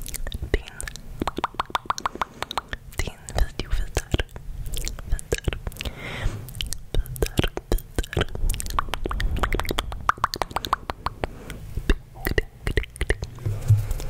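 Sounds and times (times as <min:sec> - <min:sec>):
wet tongue clicks and lip pops: 0:00.0 - 0:05.9, 0:06.5 - 0:13.4
hands moving near microphone: 0:13.2 - 0:14.0.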